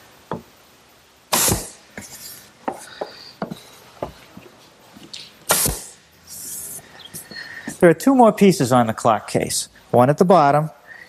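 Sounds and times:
pneumatic nailer bang: 1.3s - 1.8s, 5.5s - 6.0s.

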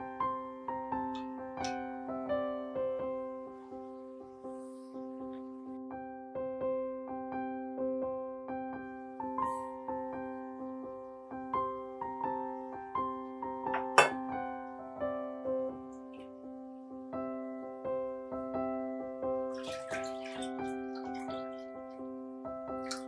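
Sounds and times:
soft piano music: 0.0s - 23.0s.

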